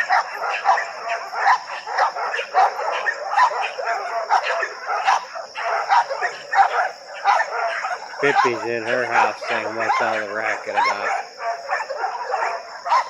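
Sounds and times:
dogs barking: 0.0 - 13.0.

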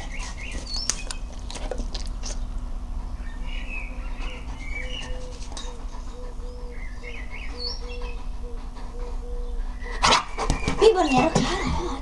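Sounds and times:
steady low rumble: 0.0 - 10.1
birds chirping: 0.0 - 12.0
pigeon cooing: 4.1 - 10.1.

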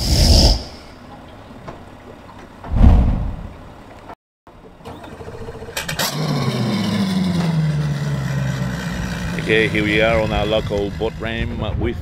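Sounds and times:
deep whoosh: 2.7 - 3.6
outboard engine starting and idling: 4.5 - 11.4.

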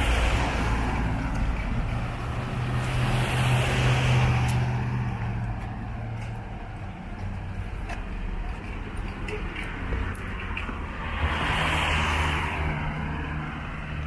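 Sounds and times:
road noise: 0.0 - 14.0.

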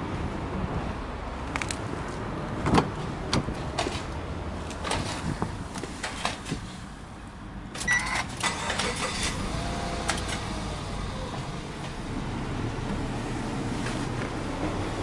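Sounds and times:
car engine idling: 8.4 - 15.0.

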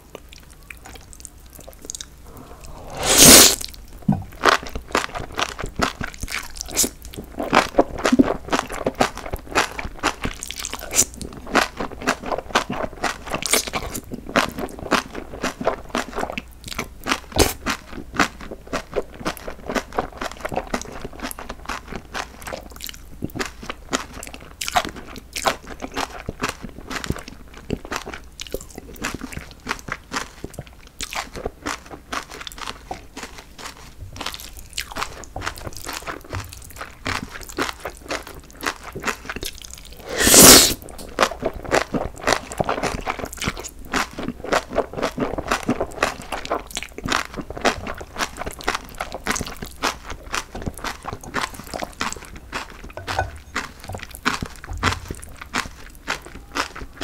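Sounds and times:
slurping noodles: 2.2 - 3.7, 40.0 - 40.8
wet crunchy chewing: 4.6 - 56.9.

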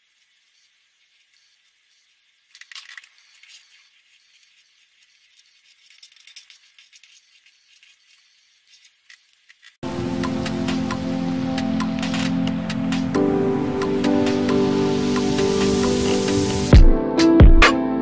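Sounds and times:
marker pen scratching on paper: 0.0 - 9.8, 12.0 - 13.1.

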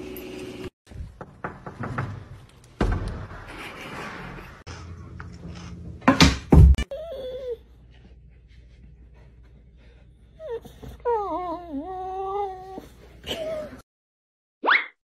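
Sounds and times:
dog whining: 6.8 - 7.6, 10.4 - 13.8.

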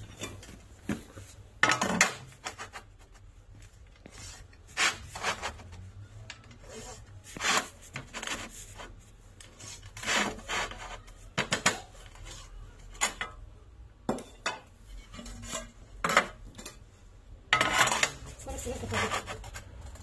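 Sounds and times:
pencil scratching on tile: 6.6 - 9.0, 9.6 - 11.2, 17.9 - 19.6
tile scraping and clinking: 17.5 - 20.0.

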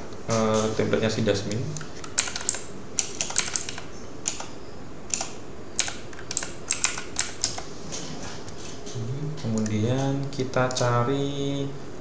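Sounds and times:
keyboard typing: 1.5 - 9.8.

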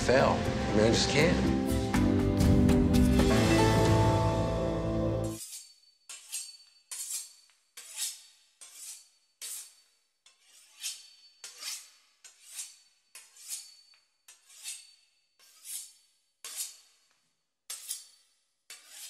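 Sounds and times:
knife sawing through pastry crust: 5.4 - 17.1, 17.7 - 19.0.

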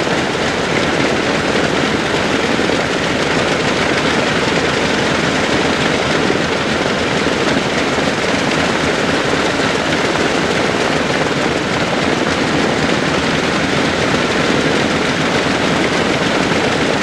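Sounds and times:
aircraft piston engines running: 0.0 - 17.0.

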